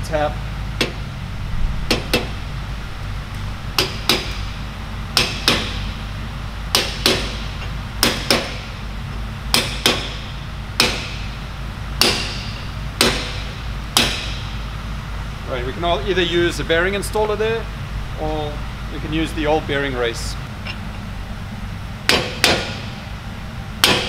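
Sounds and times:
hammer tapping metal: 0:03.8 - 0:05.9, 0:06.7 - 0:08.7, 0:09.5 - 0:10.2, 0:12.0 - 0:14.6, 0:22.1 - 0:22.9, 0:23.8 - 0:24.0.

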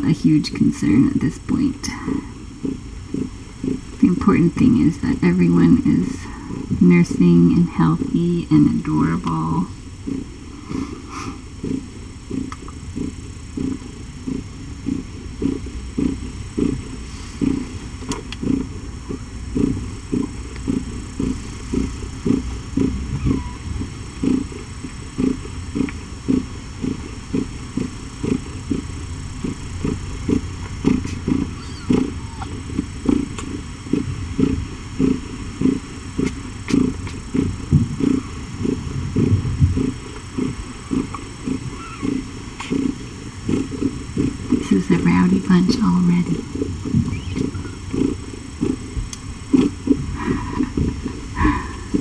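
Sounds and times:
cat purring: 0:00.0 - 0:52.0.

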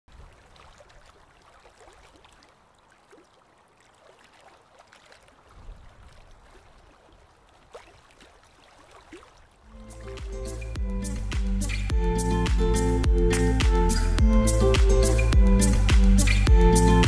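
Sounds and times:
water trickling and bubbling: 0:00.1 - 0:11.1.

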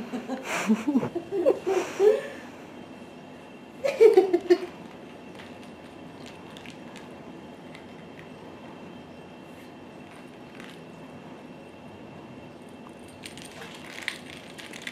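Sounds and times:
person laughing: 0:00.0 - 0:02.4, 0:03.8 - 0:04.7.

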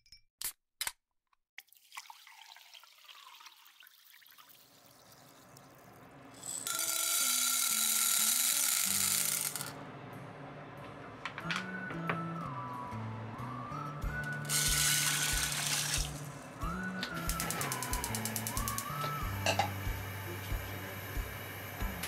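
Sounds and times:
light background music: 0:06.3 - 0:22.0
dried beans rattling into metal pot: 0:06.4 - 0:09.7, 0:14.5 - 0:16.3.

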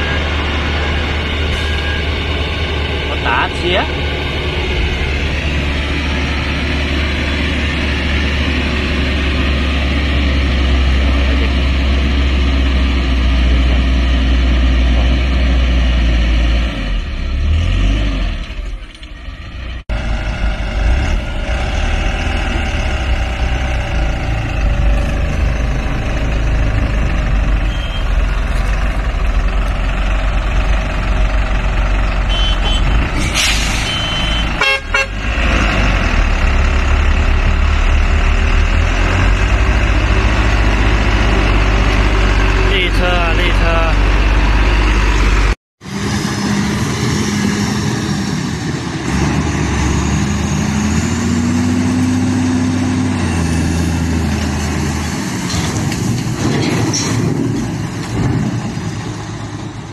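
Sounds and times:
heavy truck engines rumbling: 0:00.0 - 0:59.9
short horn toots: 0:32.3 - 0:35.2.

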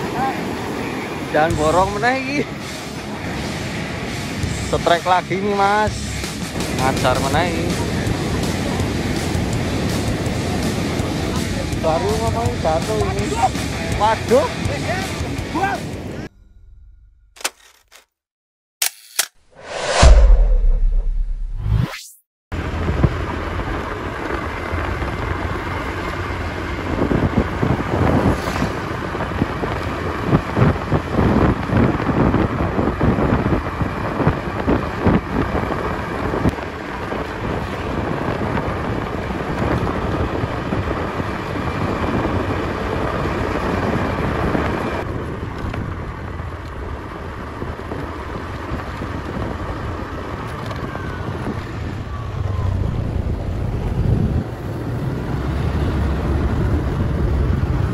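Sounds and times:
vehicle engine and road noise: 0:00.0 - 0:18.2, 0:18.8 - 0:57.9
wind buffeting microphone: 0:05.6 - 0:16.2, 0:22.6 - 0:57.9.

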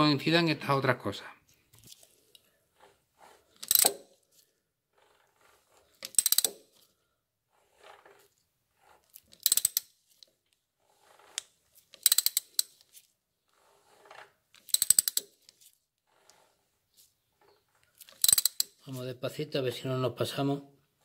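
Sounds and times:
faint mechanical sounds: 0:01.5 - 0:19.1
hand ratchet clicking: 0:03.6 - 0:04.1, 0:06.0 - 0:06.8, 0:09.1 - 0:10.3, 0:11.1 - 0:12.9, 0:14.6 - 0:15.6, 0:18.0 - 0:18.9.

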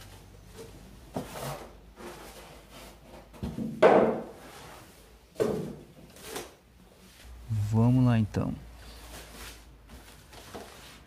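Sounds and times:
plastic wrap rustling: 0:08.8 - 0:11.0.

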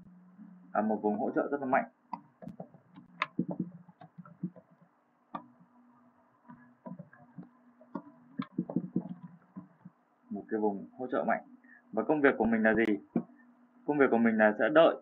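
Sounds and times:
faint electrical hum: 0:00.0 - 0:15.0
keyboard and mouse clicks: 0:02.1 - 0:04.8, 0:06.5 - 0:09.9.

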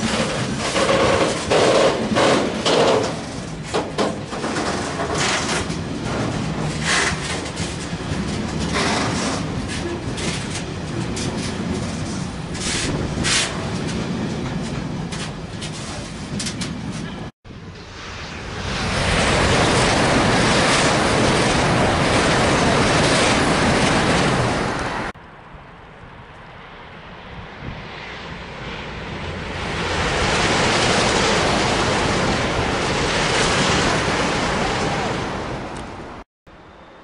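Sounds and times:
high-speed train rushing past: 0:00.0 - 0:37.0
train crossing a viaduct: 0:00.0 - 0:37.0.

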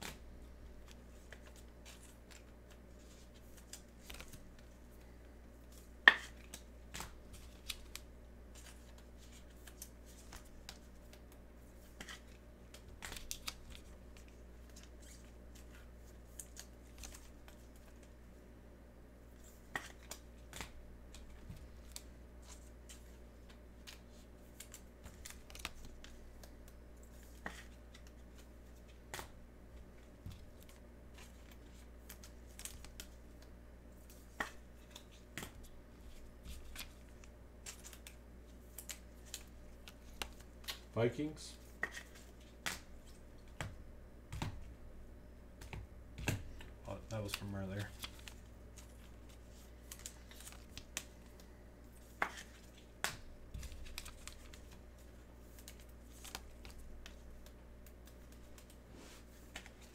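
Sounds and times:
cards clicking and scraping: 0:00.8 - 0:18.2, 0:30.0 - 0:40.9, 0:41.5 - 0:43.7, 0:45.6 - 0:59.9.

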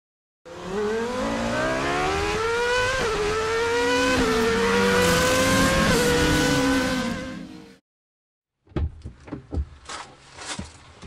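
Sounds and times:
car engine accelerating: 0:00.5 - 0:07.7.

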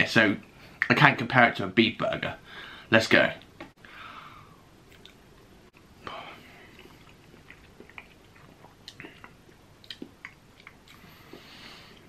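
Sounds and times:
person chewing soft food: 0:04.9 - 0:12.0
mouth clicks: 0:06.8 - 0:11.5.

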